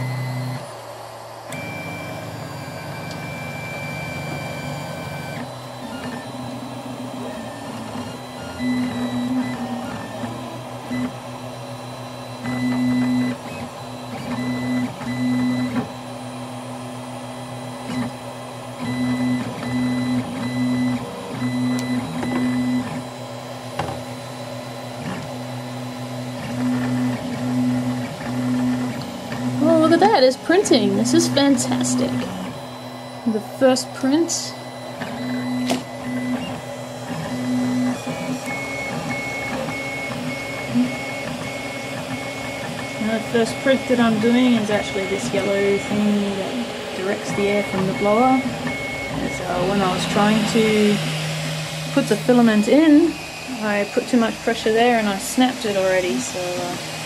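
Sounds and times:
stepper motors whining: 0.0 - 57.0
steady high whine: 28.6 - 57.0.

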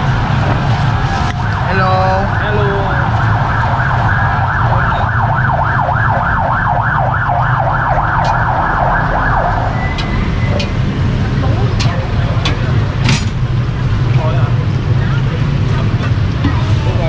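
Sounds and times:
siren yelping: 0.0 - 11.2
low street rumble: 0.0 - 17.0.

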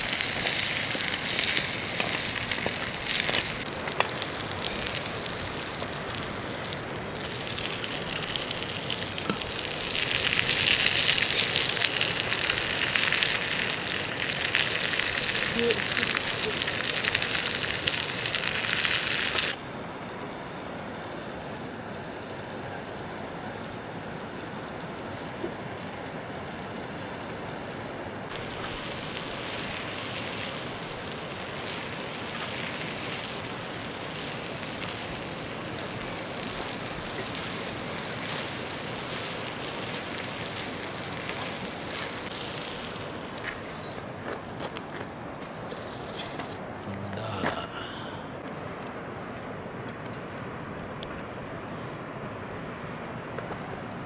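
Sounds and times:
vegetables sizzling in a pot: 0.0 - 44.0.

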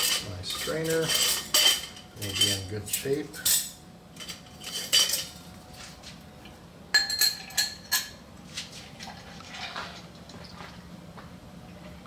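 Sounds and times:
metal bar tools and glassware clinking: 0.0 - 5.4, 7.0 - 8.2.

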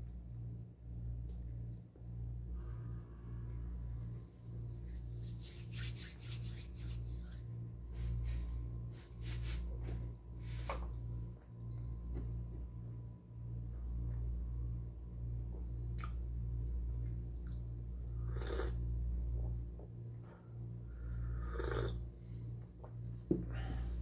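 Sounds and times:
air conditioner humming: 0.0 - 24.0
sip from a mug: 18.3 - 18.8, 21.4 - 22.0.

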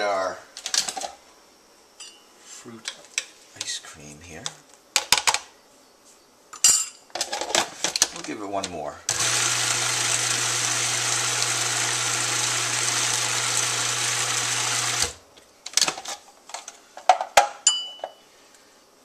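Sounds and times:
food processor motor running: 9.1 - 15.2.

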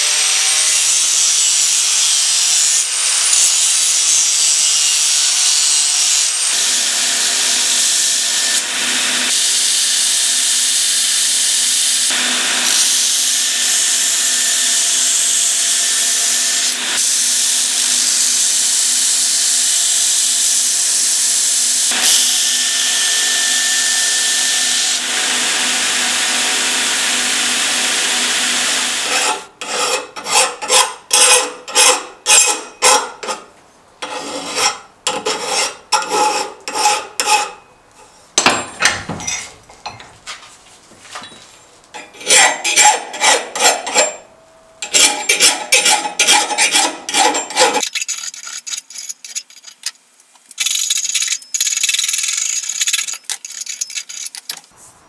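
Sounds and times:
electric grinder grinding steel: 0.0 - 29.5
hand file rasping on steel: 29.0 - 37.6, 42.0 - 44.2, 44.8 - 47.8.

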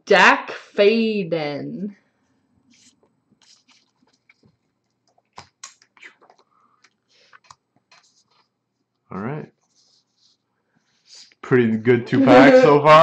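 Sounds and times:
cards tapping and rustling: 2.7 - 8.4.

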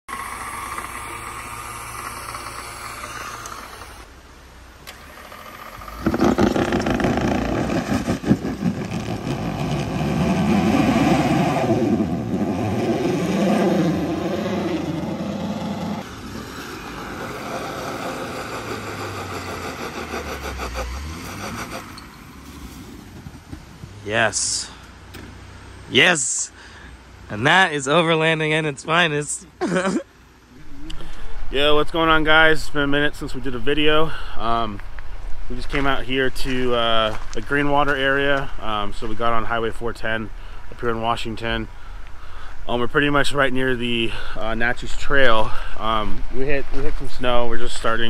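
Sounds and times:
car engine revving: 4.8 - 24.0.

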